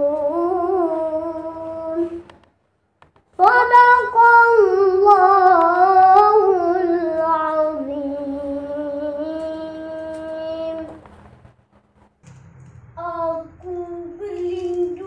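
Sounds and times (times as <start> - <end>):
boy chanting melodically: 0.0 - 2.3, 3.4 - 11.0, 13.0 - 15.0.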